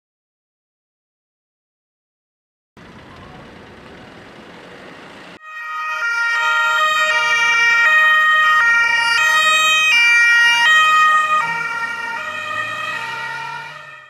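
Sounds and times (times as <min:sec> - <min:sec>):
car engine revving: 0:02.8 - 0:05.4, 0:10.7 - 0:14.0
two-tone police sirens: 0:02.8 - 0:14.0.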